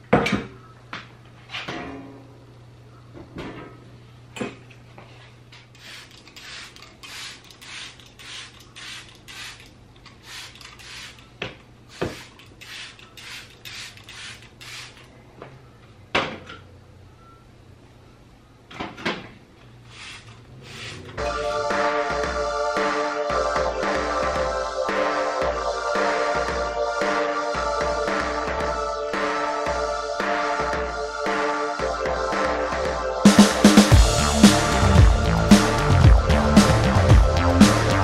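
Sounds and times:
steady low hum: 19.4s - 38.0s.

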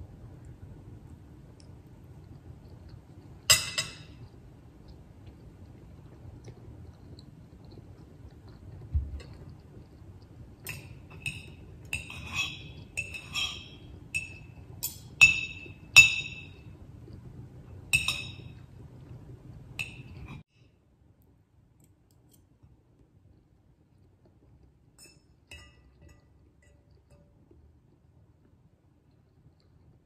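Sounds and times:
cutlery clinking against a bowl: 3.4s - 4.3s, 10.6s - 16.7s, 17.9s - 18.7s, 19.8s - 20.4s, 25.0s - 27.4s.

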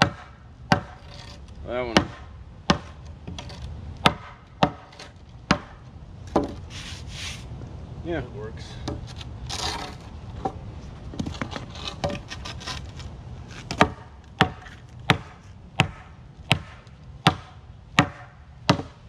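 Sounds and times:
board striking pavers: 0.0s - 7.4s, 8.8s - 19.0s
light knocks and scraping: 0.8s - 1.6s, 3.0s - 3.8s, 6.3s - 7.6s, 8.8s - 15.6s.

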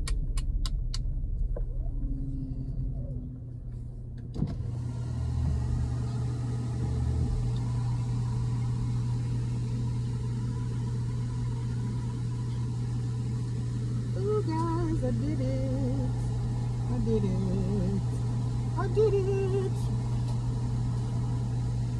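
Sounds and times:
click inside car: 0.0s - 1.7s
car cabin hum: 0.0s - 21.9s.

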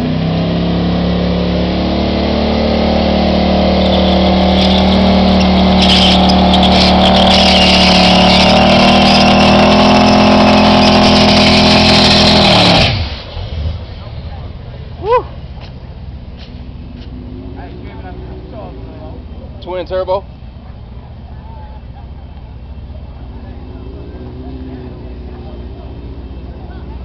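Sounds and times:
engine at high revs: 0.0s - 13.7s, 17.0s - 19.9s, 23.1s - 27.0s
tyres spinning and squealing: 2.8s - 15.6s.

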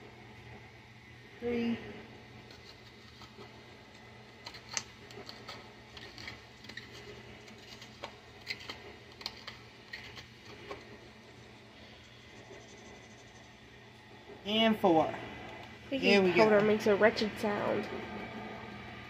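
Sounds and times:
spoon scraping caked powder: 4.4s - 13.5s.

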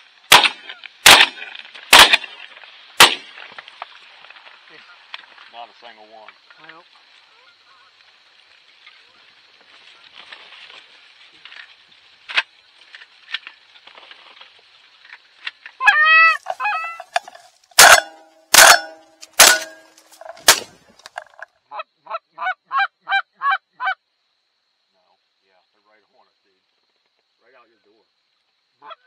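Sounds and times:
shotgun shots: 0.3s - 2.4s, 3.0s - 3.4s, 17.8s - 20.8s
geese honking: 15.8s - 18.8s.

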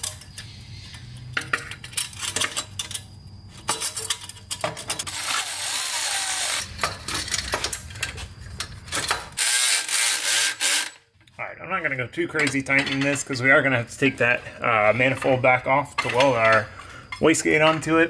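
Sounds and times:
cordless ratchet whirring: 5.1s - 6.7s.

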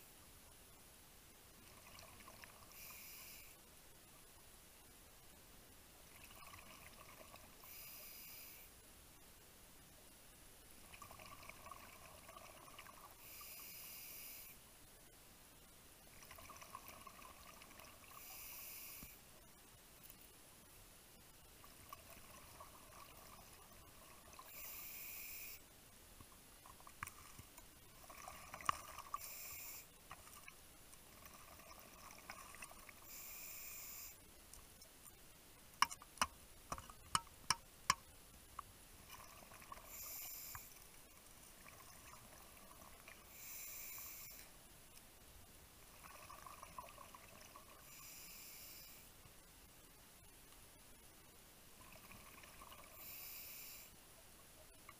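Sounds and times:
regulator hissing inhale: 2.7s - 3.6s, 7.6s - 8.7s, 13.2s - 14.6s, 18.2s - 19.2s, 24.5s - 25.6s, 29.1s - 29.9s, 33.0s - 34.2s, 39.9s - 40.8s, 43.3s - 44.5s, 47.8s - 49.1s, 52.9s - 54.0s.

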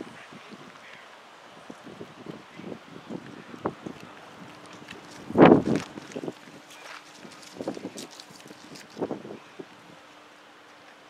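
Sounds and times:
wind on microphone: 1.5s - 10.0s.

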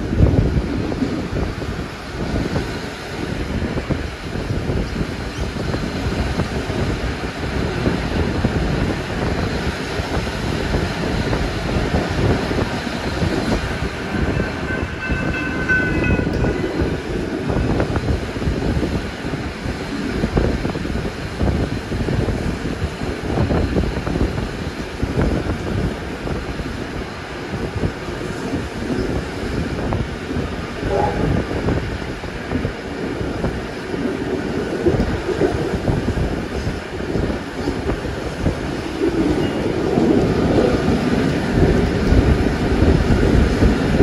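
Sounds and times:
train wheels clattering on track: 0.0s - 44.0s.

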